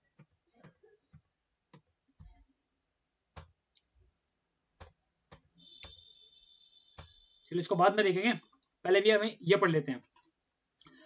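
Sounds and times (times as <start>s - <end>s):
computer keys and mouse clicks: 0.0s - 2.6s, 3.3s - 3.9s, 4.7s - 6.1s.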